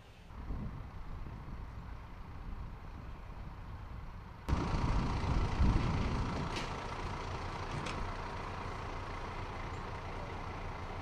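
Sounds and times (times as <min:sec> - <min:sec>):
low rumble: 0:00.4 - 0:07.6.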